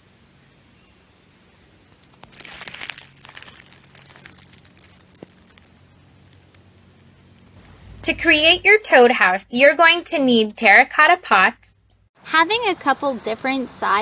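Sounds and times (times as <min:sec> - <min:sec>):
dry leaves crackling and rustling: 0:02.0 - 0:06.7.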